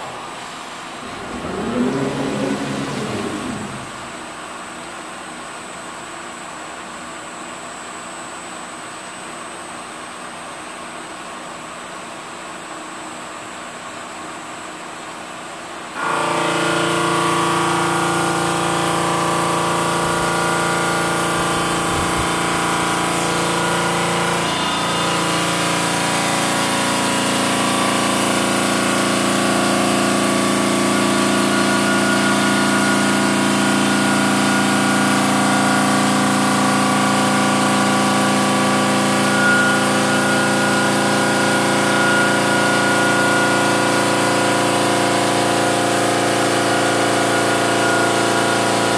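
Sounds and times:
stone saw blade whining: 1.0s - 4.4s, 16.0s - 48.9s.

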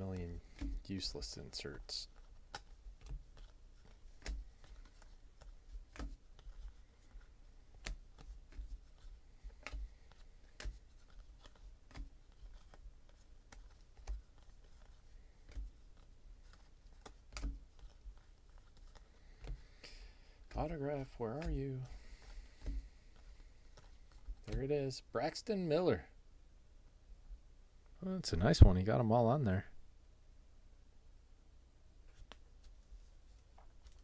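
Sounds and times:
trading cards clicking: 9.5s - 15.8s.

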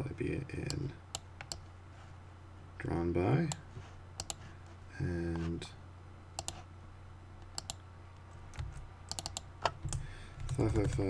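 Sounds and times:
computer mouse clicking: 4.2s - 4.4s, 6.4s - 6.6s, 7.4s - 7.8s, 8.5s - 11.0s
keyboard keys tapping: 8.5s - 11.0s.

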